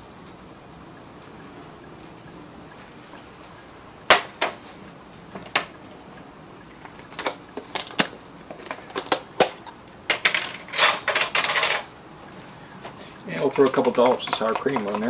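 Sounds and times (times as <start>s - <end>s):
kitchen utensils clicking: 7.1s - 11.9s, 13.4s - 15.0s.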